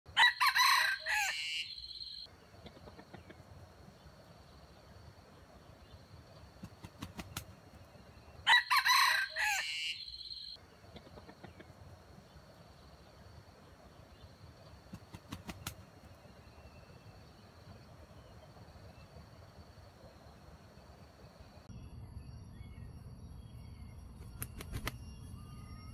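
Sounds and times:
rooster crowing: 0.1s - 2.2s, 8.4s - 10.6s.

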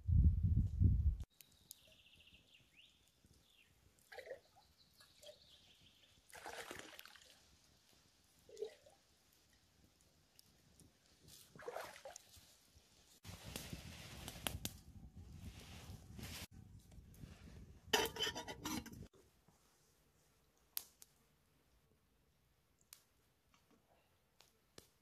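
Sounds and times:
water splashing and trickling: 4.0s - 13.2s.

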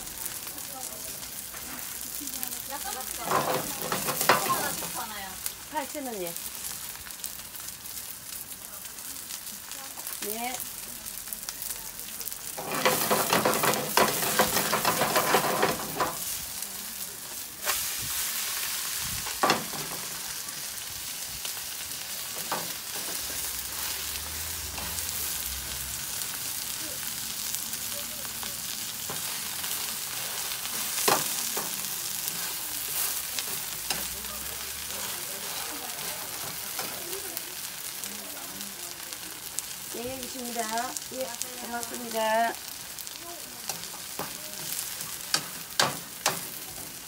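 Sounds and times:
pancake sizzling in oil: 0.0s - 47.0s
metal spatula scraping pan: 3.2s - 4.9s, 12.6s - 16.2s.

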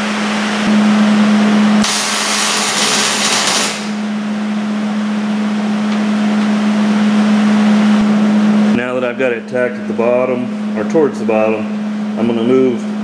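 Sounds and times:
steady hum: 0.0s - 13.0s
welding arc hissing: 1.8s - 4.0s.

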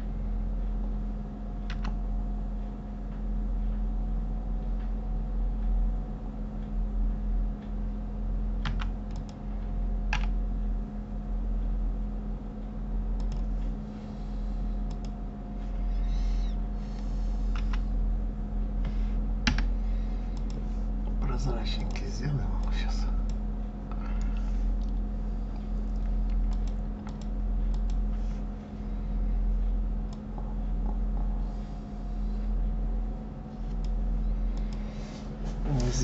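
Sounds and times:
low electrical hum: 0.0s - 36.0s
keyboard and mouse clicks: 1.6s - 2.0s, 8.6s - 9.4s, 10.1s - 10.4s, 13.2s - 13.5s, 14.8s - 15.2s, 17.5s - 17.8s, 19.4s - 19.7s, 25.9s - 28.0s.

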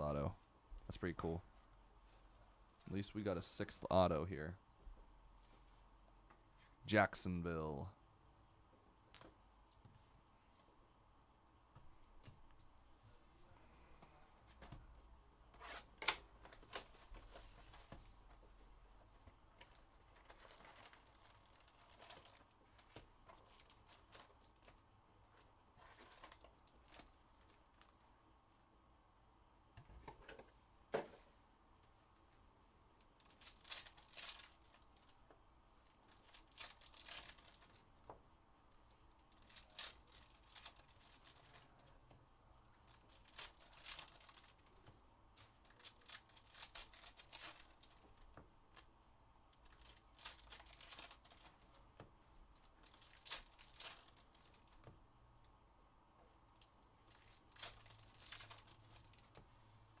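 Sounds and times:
foil wrappers tearing: 33.2s - 34.8s, 36.0s - 37.8s, 42.9s - 44.7s, 45.6s - 48.0s, 49.6s - 51.7s, 52.8s - 54.7s, 57.1s - 59.3s.

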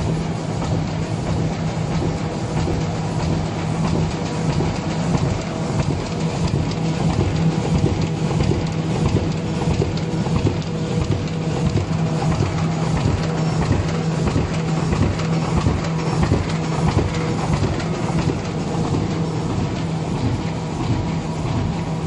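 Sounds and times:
machine hum: 0.0s - 22.0s
mechanical clatter: 0.0s - 22.0s.

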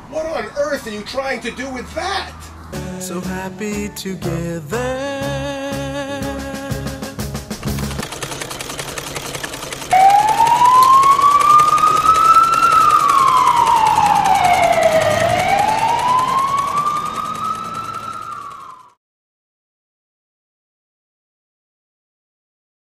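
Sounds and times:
siren wailing: 9.9s - 19.0s.

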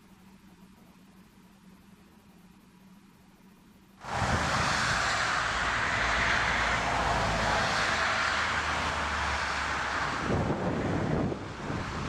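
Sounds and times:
jet airliner engines roaring: 4.0s - 12.0s.

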